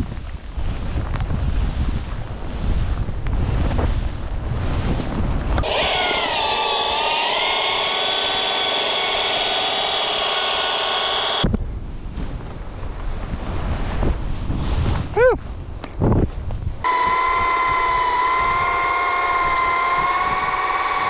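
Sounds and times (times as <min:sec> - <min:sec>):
wind rushing over microphone: 0:00.0 - 0:21.0
rope tow motor whine: 0:05.6 - 0:11.5, 0:16.8 - 0:21.0.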